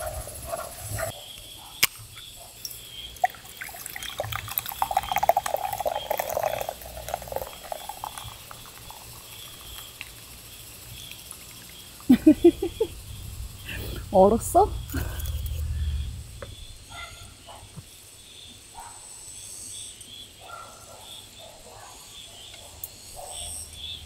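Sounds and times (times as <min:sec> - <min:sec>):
cola pouring and fizzing: 0:02.5 - 0:16.7.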